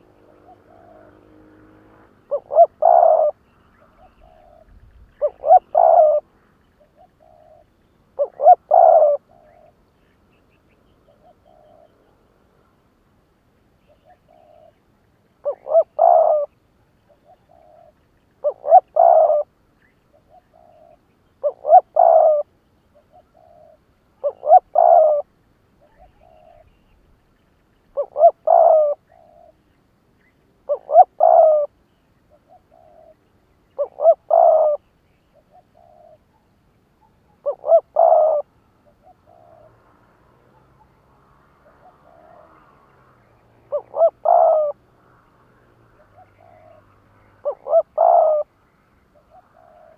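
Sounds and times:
dove cooing: 0.0s - 9.8s, 11.0s - 12.2s, 13.9s - 14.8s, 15.4s - 27.0s, 27.9s - 29.6s, 30.6s - 44.9s, 45.9s - 49.9s.

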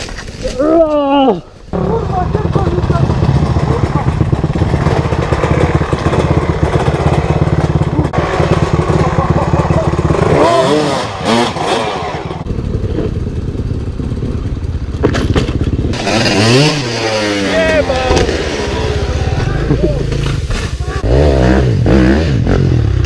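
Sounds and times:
dirt bike engines revving: 0.6s - 23.0s.

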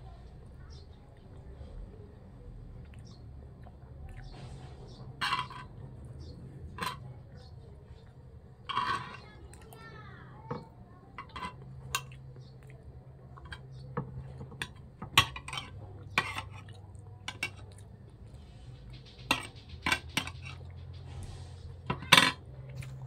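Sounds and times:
cutlery clinking on a plate: 5.2s - 5.8s, 6.7s - 7.1s, 8.7s - 9.3s, 11.2s - 12.2s, 13.4s - 17.6s, 19.2s - 20.8s, 21.9s - 22.9s.

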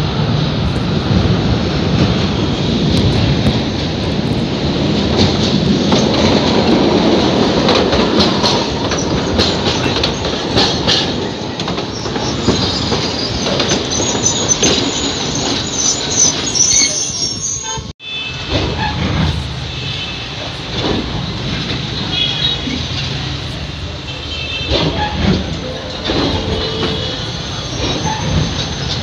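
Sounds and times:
tram wheels rumbling over rail joints: 0.0s - 29.0s
high wheel squeal: 8.8s - 20.5s, 24.1s - 29.0s.

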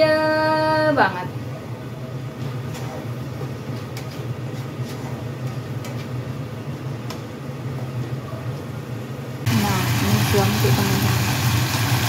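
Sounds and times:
low mechanical hum: 0.0s - 12.0s
food frying in a pan: 9.5s - 12.0s.

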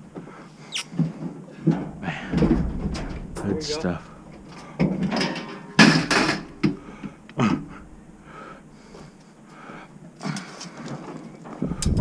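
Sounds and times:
debris clattering in metal dumpster: 1.6s - 7.0s
sharp bangs: 1.8s - 8.2s.

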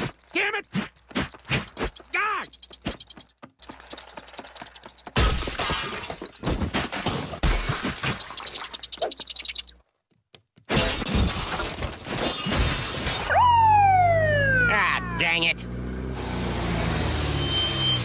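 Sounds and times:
objects crashing and breaking: 5.1s - 8.6s, 10.7s - 13.3s.

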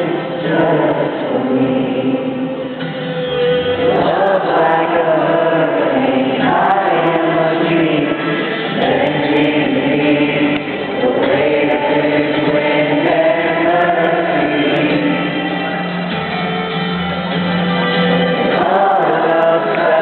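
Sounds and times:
man singing lead: 0.0s - 2.7s, 3.8s - 15.8s, 18.3s - 20.0s
many voices singing: 0.0s - 16.2s, 18.0s - 20.0s
band playing worship song: 0.0s - 20.0s.

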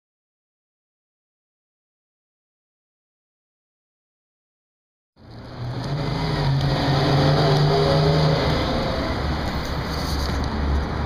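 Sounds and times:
road traffic noise: 5.2s - 11.0s
vehicle engine humming: 5.2s - 11.0s.

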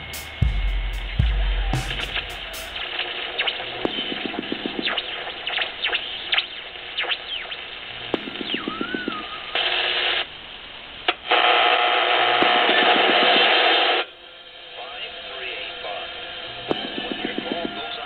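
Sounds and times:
radio static and hiss: 0.0s - 18.0s
radio whistles sweeping down: 1.9s - 10.4s.

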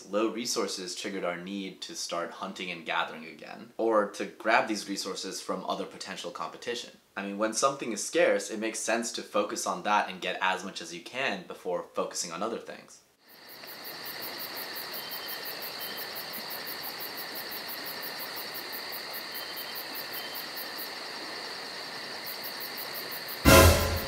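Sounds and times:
crickets chirping: 13.2s - 24.0s.

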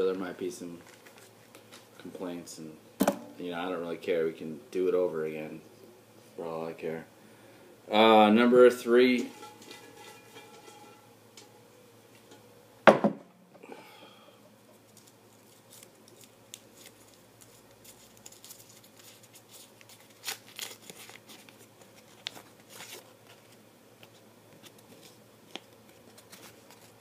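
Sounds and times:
paper slip crinkling: 0.6s - 2.0s, 14.8s - 27.0s
paper rustling: 0.7s - 1.9s, 14.9s - 27.0s.

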